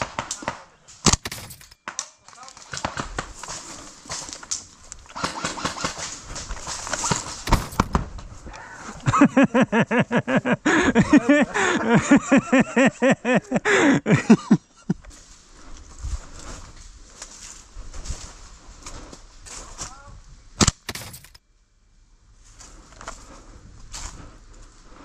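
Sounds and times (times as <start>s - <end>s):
person huffing rhythmically: 10.6s - 12.0s, 13.4s - 14.1s
rustling noise: 15.0s - 20.0s.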